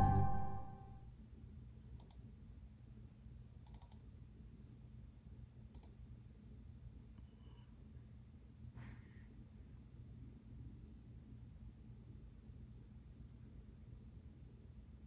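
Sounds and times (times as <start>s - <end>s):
faint clicks: 2.0s - 2.2s, 3.6s - 4.0s, 5.7s - 6.0s.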